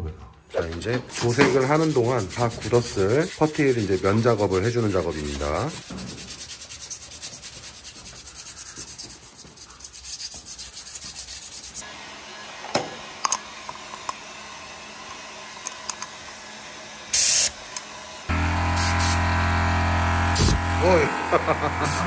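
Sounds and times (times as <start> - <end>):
sanding sponge scrubbing: 1.1 - 11.8
loud hiss: 17.1 - 17.6, 18.6 - 19.4, 20.2 - 22.0.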